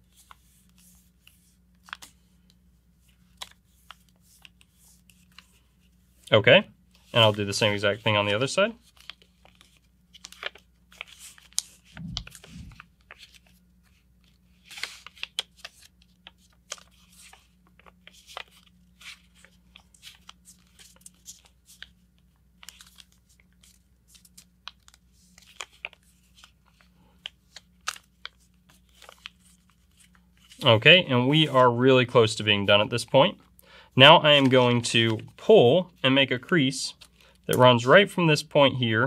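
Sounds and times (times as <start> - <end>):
paper folding and crinkling: 0.0 - 33.6, 34.2 - 38.0
soft low thump: 12.0 - 12.8.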